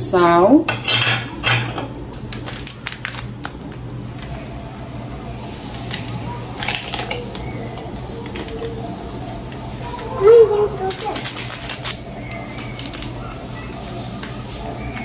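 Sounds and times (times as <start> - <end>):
kitchen utensils clicking: 5.8 - 8.8, 10.8 - 13.2.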